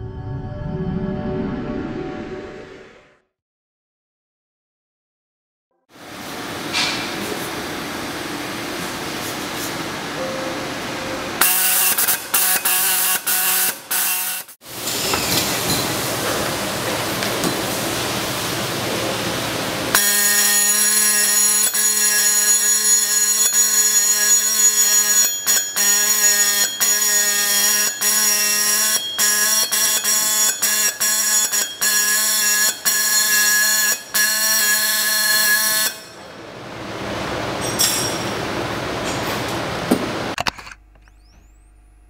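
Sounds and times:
marking machine stylus hammering metal: 20.0 - 36.2.

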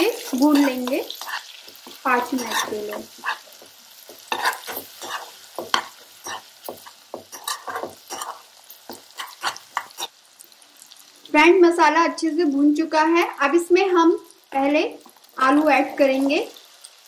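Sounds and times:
metal spoon scraping a pan: 0.0 - 10.1
sauce sizzling in oil: 0.0 - 17.0.

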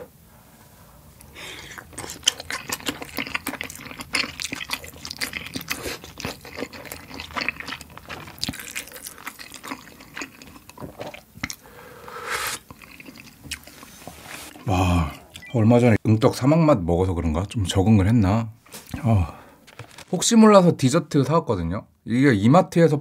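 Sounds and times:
wet chewing: 1.2 - 11.6, 12.4 - 15.5
slurp of broth: 12.0 - 12.8.

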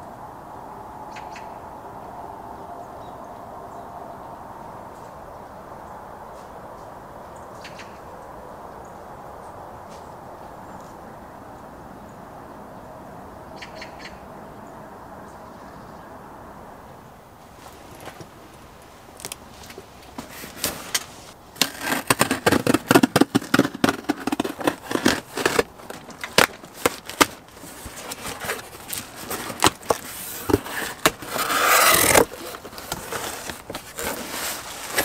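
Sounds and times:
tape crackling off cardboard: 19.2 - 35.0
tape tearing rip: 20.5 - 35.0.

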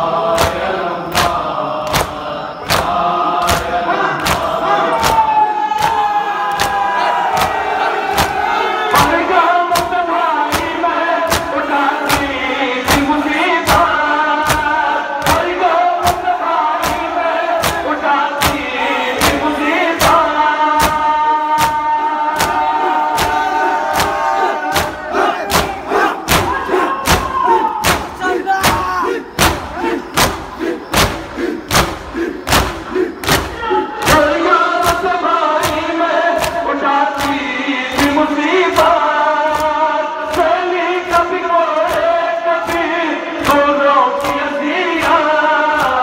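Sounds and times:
men chanting in unison: 0.0 - 46.0
hands slapping chests: 0.3 - 38.2, 38.8 - 40.5, 41.1 - 46.0.

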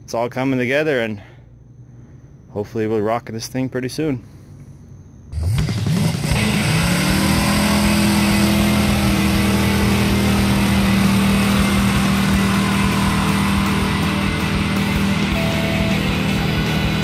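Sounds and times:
car engine revving: 5.4 - 17.0.

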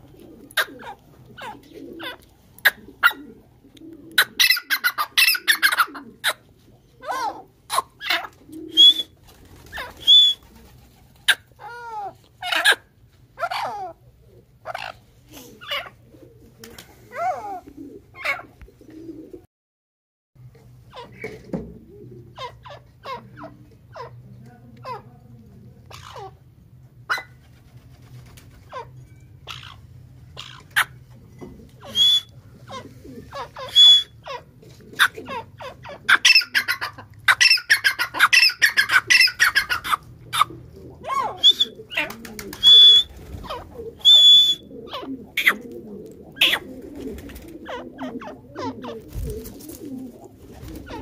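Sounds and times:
francolin calling: 31.8 - 32.3.

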